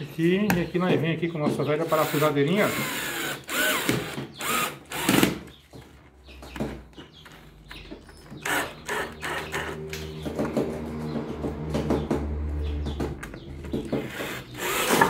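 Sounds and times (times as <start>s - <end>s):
cordless drill driving a screw: 1.9s - 5.4s, 8.4s - 9.8s, 14.0s - 15.0s.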